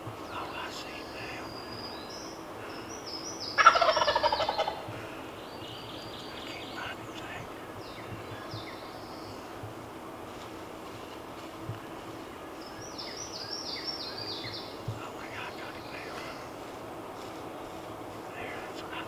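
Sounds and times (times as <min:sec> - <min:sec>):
turkey gobbling: 0:03.6 - 0:04.9.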